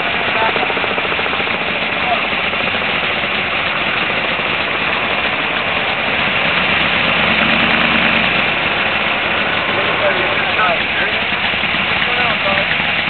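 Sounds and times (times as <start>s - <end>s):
truck engine idling loudly: 0.0s - 13.0s
deeper hum: 6.3s - 11.5s.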